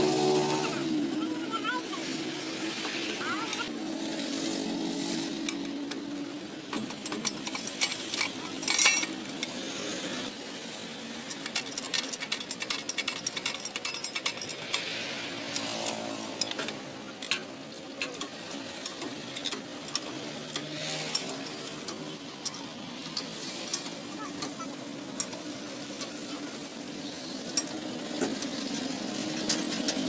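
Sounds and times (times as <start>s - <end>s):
jack ratchet clicks and clanks: 5.4s - 9.6s, 11.1s - 26.3s.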